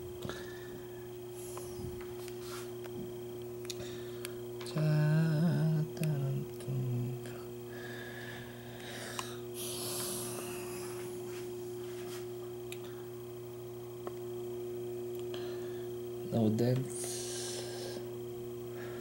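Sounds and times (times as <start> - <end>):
steady tonal hum: 0.0 - 19.0.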